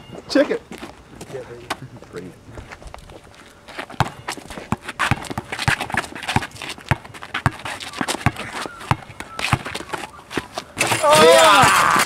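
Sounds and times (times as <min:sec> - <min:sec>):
shoes scuffing: 0:02.5 - 0:12.0
basketball bouncing on court: 0:04.0 - 0:09.8.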